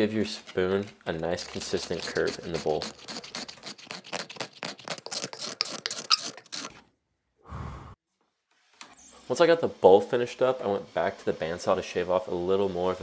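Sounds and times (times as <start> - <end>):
scraper scraping wood: 1.4 - 6.8
short breathy sound: 7.4 - 8.0.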